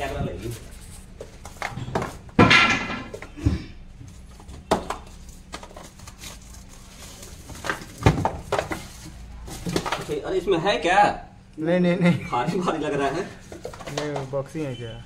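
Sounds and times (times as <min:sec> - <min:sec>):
cardboard boxes knocking and clattering: 0:01.2 - 0:06.4, 0:07.0 - 0:10.2
boxes scraping: 0:04.0 - 0:10.4.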